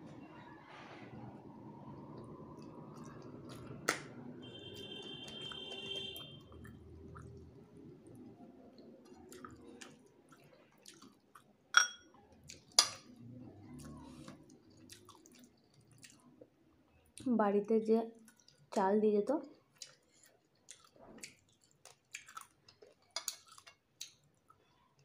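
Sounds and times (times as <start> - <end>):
soft chewing: 0.4 - 17.3, 18.1 - 18.8, 19.4 - 25.0
clinks on ceramic plate: 11.8 - 12.1.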